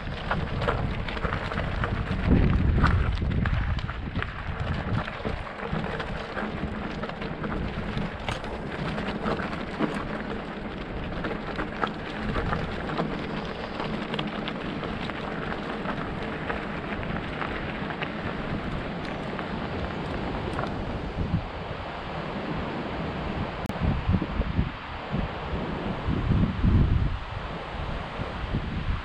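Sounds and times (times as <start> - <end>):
bike clicks and rattles: 0.0 - 21.2
tyre and wind rush: 0.0 - 29.0.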